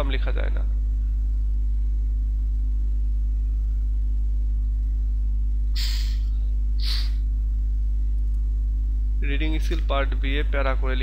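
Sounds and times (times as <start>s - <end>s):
electrical mains hum: 0.0s - 11.0s
short hisses: 5.8s - 7.2s.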